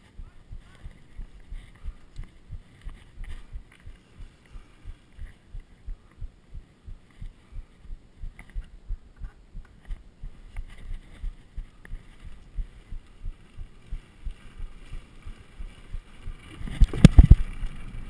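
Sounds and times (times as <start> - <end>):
bike clicks and rattles: 15.3 - 18.0.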